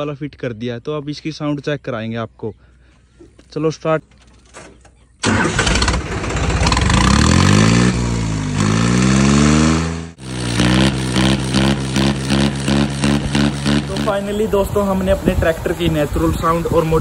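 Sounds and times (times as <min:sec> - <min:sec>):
tractor diesel engine revving: 0:05.2 - 0:17.0.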